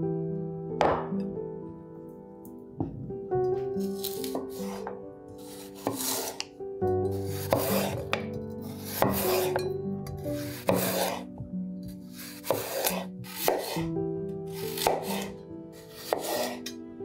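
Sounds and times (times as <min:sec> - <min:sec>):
soft background music: 0:00.0 - 0:17.0
knife slicing potatoes on board: 0:03.8 - 0:06.5, 0:07.1 - 0:13.9, 0:14.5 - 0:16.8.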